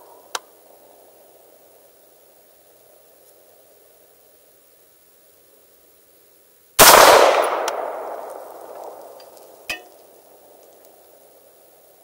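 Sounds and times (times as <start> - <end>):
rifle shot with echo: 6.8 - 9.2.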